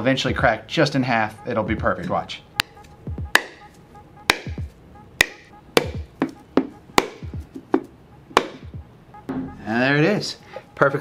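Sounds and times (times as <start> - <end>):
hammer knocking on coconut shell: 2.6 - 3.6, 4.3 - 8.8.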